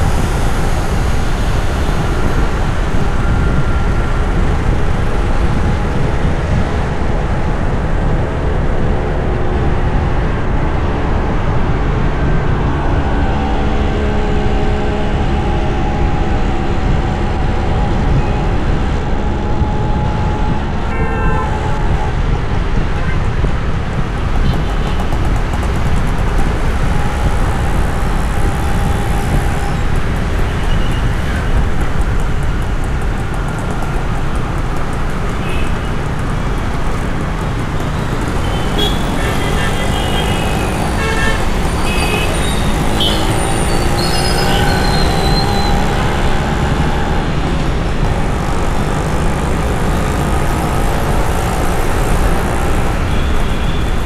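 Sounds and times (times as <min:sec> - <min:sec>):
traffic rumble of engines and tyres: 0:00.0 - 0:54.0
car horn toots: 0:37.9 - 0:46.6.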